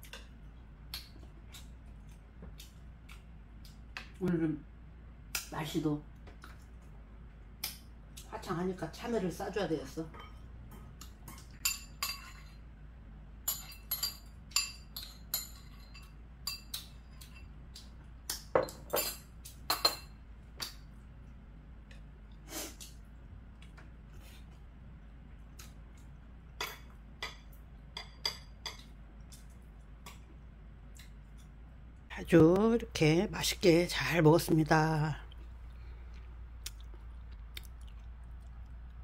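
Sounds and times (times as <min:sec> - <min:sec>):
metal utensils clinking on bowls: 0:10.1 - 0:12.6, 0:13.4 - 0:17.5, 0:18.6 - 0:20.2.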